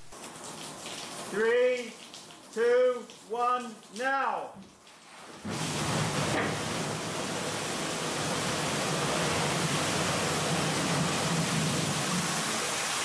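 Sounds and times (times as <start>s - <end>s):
heavy rush of falling water: 5.4s - 13.0s.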